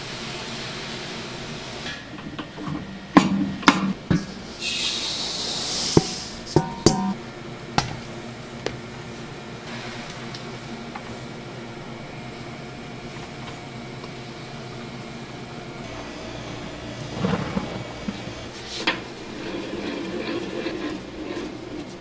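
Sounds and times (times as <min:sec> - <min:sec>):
kitchen machinery hum: 0:00.0 - 0:22.0
metal scrape: 0:17.0 - 0:22.0.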